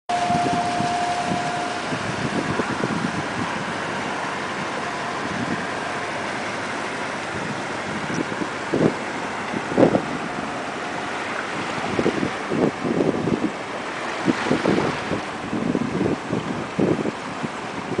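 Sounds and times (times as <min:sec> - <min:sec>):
boat engine running: 0:00.0 - 0:18.0
thin steady whine: 0:00.1 - 0:15.4.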